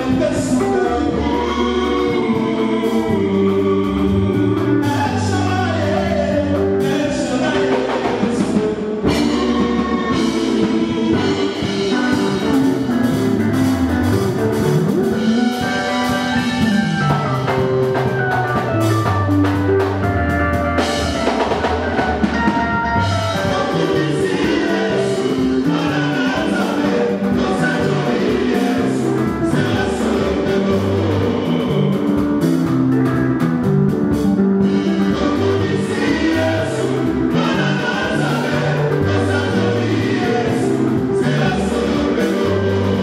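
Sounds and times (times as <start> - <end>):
male vocal group singing: 0.0 - 13.7, 23.0 - 32.9, 34.6 - 43.0
band with drum kit: 0.0 - 43.0.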